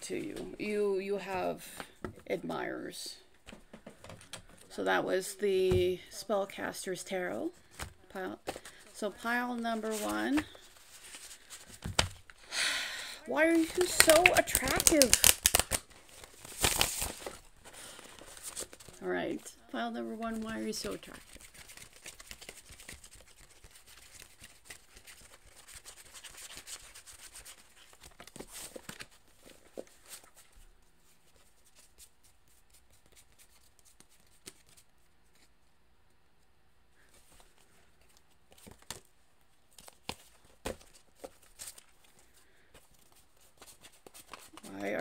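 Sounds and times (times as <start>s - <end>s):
cards rustling while shuffled: 7.6s - 12.4s, 13.4s - 19.5s, 20.2s - 35.5s, 37.0s - 39.1s, 39.7s - 45.0s
sharp card clicks: 13.8s - 15.8s.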